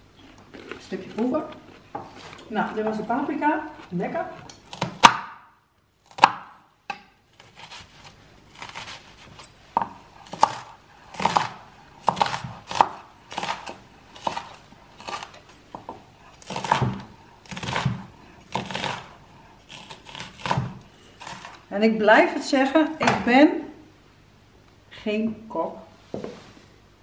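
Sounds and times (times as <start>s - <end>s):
knife chopping on wooden board: 4.4s - 5.5s, 6.1s - 21.6s.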